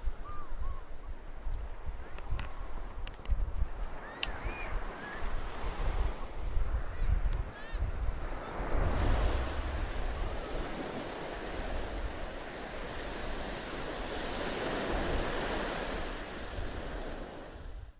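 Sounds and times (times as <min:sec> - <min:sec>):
wind buffeting microphone: 0:00.0 - 0:17.9
surf rushing: 0:04.0 - 0:17.6.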